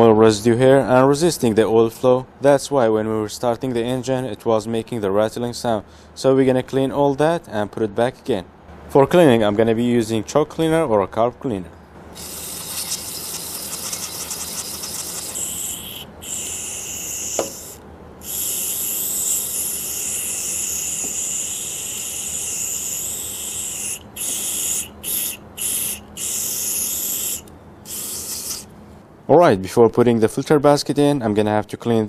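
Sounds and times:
aerosol spray hissing: 0:12.2 - 0:28.7.

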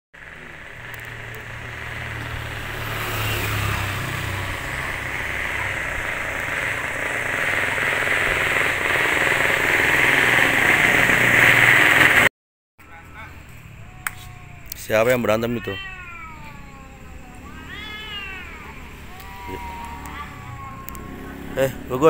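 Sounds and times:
engine humming: 0:00.2 - 0:12.3, 0:12.9 - 0:22.0
rushing noise: 0:00.2 - 0:12.3.

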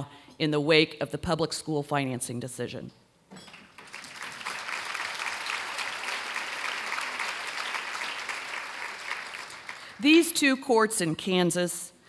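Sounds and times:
audience applauding: 0:03.5 - 0:10.0.

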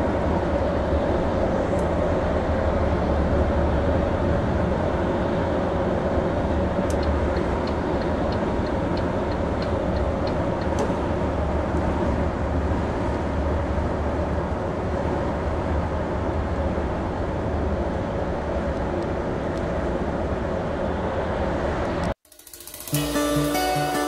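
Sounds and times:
engine and road noise: 0:00.0 - 0:24.0
light regular ticks: 0:06.9 - 0:10.9.

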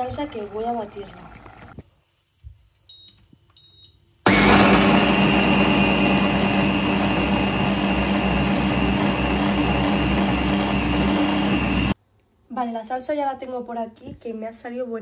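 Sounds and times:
blender touch panel beep: 0:02.9 - 0:11.9
blender motor running: 0:04.3 - 0:12.0.

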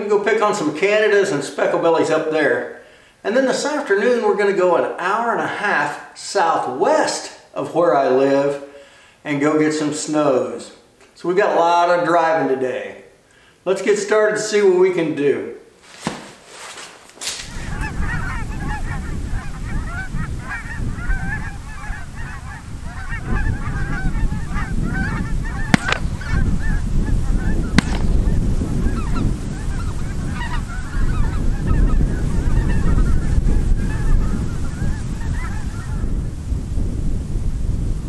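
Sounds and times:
wind rumbling on microphone: 0:17.4 - 0:38.0
geese honking: 0:17.5 - 0:36.1
sharp clicks: 0:25.8 - 0:26.2, 0:27.8 - 0:28.3.

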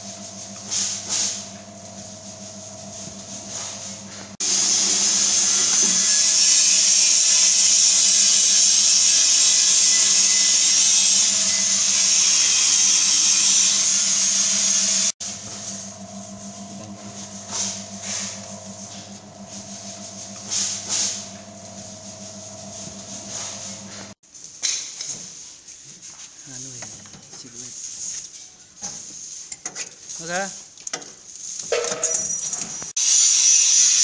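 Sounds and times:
cooking machine humming: 0:00.0 - 0:24.2
loud steady hiss: 0:04.4 - 0:15.8, 0:33.0 - 0:34.0.

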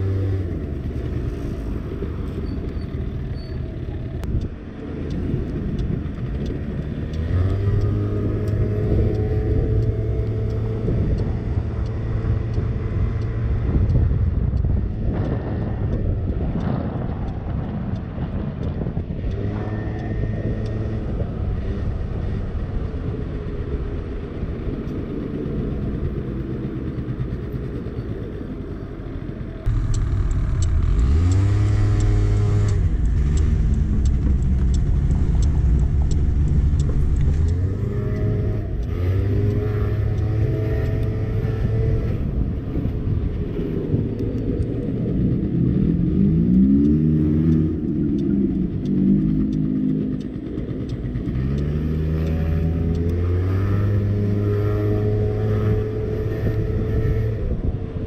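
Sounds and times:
scooter engine accelerating: 0:00.0 - 0:16.7, 0:29.6 - 0:58.0.

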